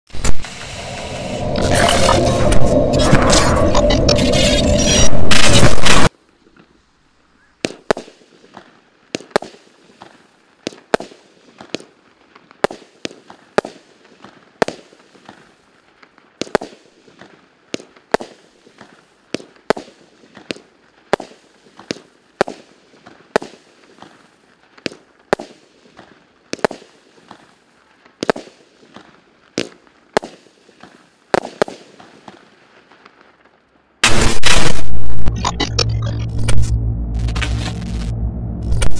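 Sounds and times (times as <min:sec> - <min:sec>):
fireworks bangs: 0:00.1 - 0:06.2, 0:07.6 - 0:15.6, 0:16.4 - 0:33.2, 0:34.0 - 0:38.9
loud music: 0:35.3 - 0:38.9.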